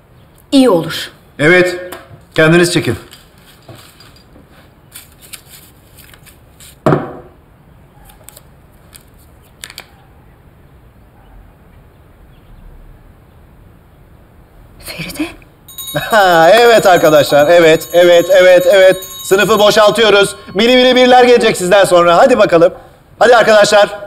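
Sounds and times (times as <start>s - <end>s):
paper crinkling: 4.9s - 6.8s.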